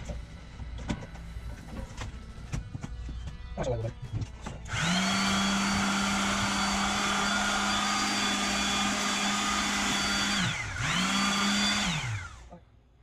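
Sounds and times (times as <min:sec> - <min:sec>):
electric palm sander running: 0:04.7 - 0:12.5.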